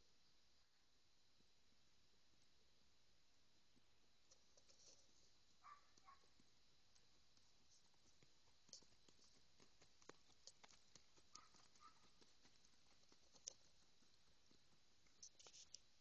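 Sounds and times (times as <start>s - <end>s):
faint irregular clicks: 4.2s - 16.0s.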